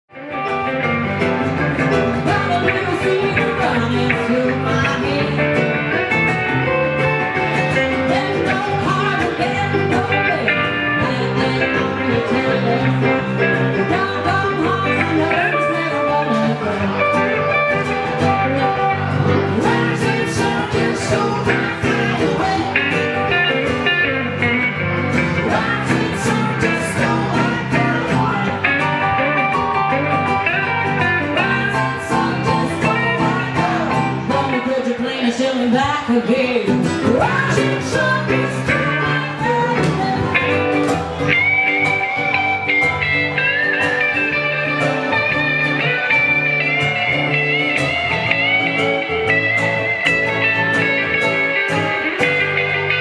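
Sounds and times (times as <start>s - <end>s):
acoustic guitar: 0.1s - 53.0s
electric guitar: 0.1s - 53.0s
keyboard: 0.2s - 53.0s
woman singing: 2.2s - 5.9s, 7.7s - 17.3s, 18.2s - 23.6s, 25.3s - 40.9s.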